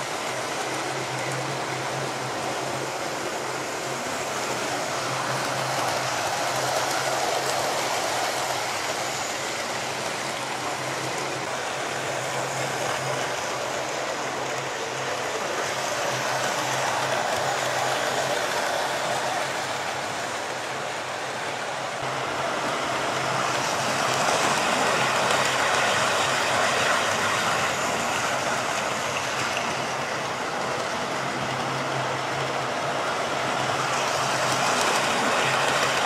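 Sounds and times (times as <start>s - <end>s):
model train motor hum: 0.0s - 36.0s
wheels rumbling on rails: 0.0s - 36.0s.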